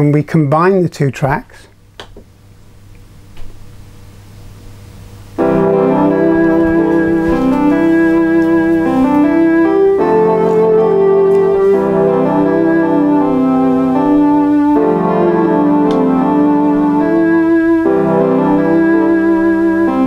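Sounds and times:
synthesizer chords and melody: 5.4s - 20.0s.

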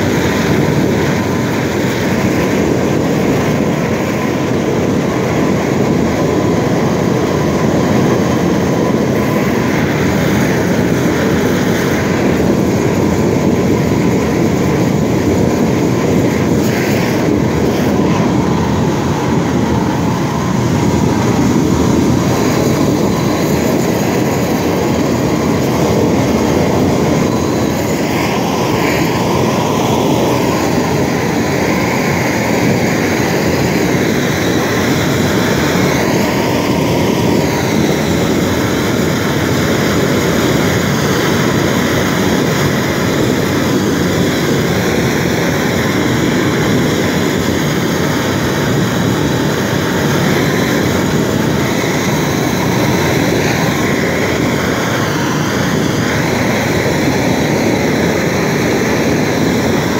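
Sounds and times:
propane torch flame rushing: 0.0s - 59.9s.

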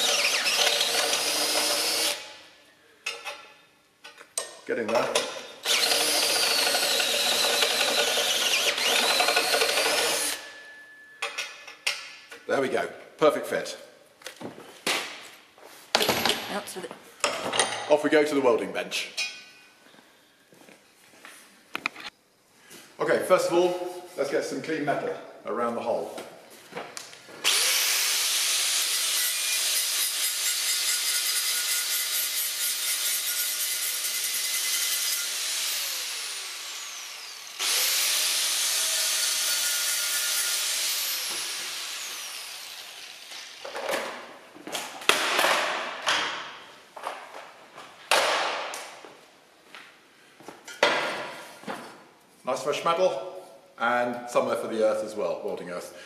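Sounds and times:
drill cutting steel whine: 0.0s - 2.2s, 5.6s - 10.5s, 27.4s - 43.3s.

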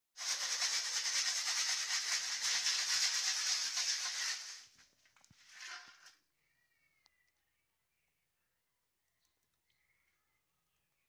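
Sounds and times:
peanuts rattling into metal wok: 0.2s - 4.7s.

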